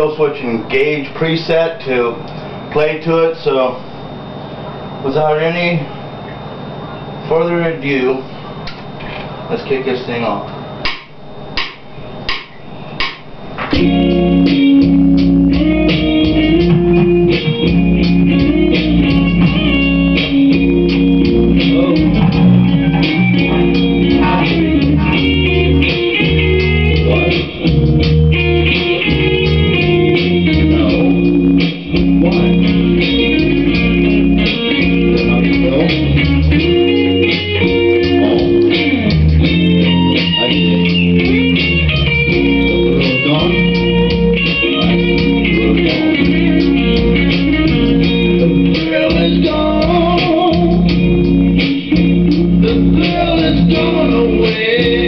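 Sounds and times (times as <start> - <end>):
bass guitar line: 13.4 - 55.0
electric guitar riff: 13.4 - 55.0.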